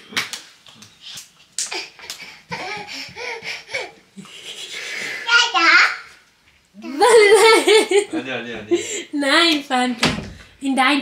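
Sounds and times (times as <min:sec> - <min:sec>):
small hands clapping: 0:00.1 - 0:02.9.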